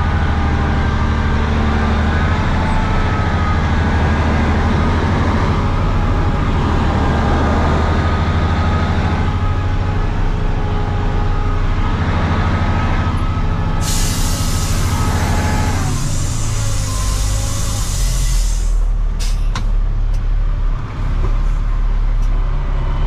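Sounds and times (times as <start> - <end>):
heavy diesel engine droning: 0.0 - 23.0
high hiss: 13.8 - 18.8.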